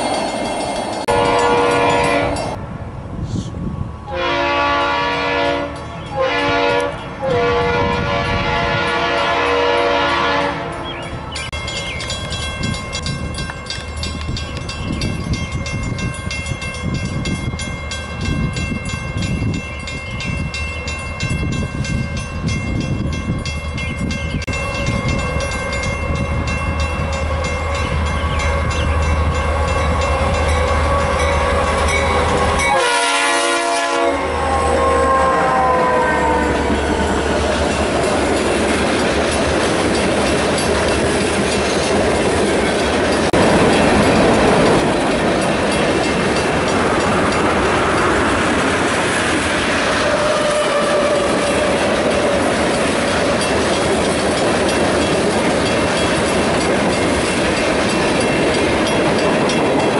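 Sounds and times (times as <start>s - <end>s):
rolling rumble of train cars: 0.0s - 59.9s
train horn sliding down in pitch: 1.1s - 2.6s, 4.1s - 10.9s, 27.0s - 37.2s, 49.7s - 52.4s.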